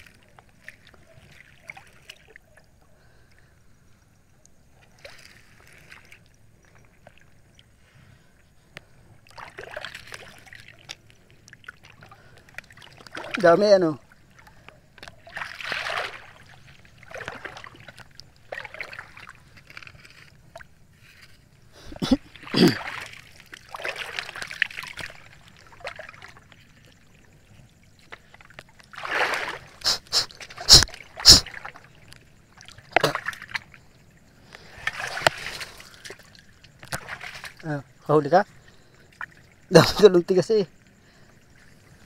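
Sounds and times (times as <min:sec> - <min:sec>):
wading through splashing water: 0:00.0 - 0:42.0.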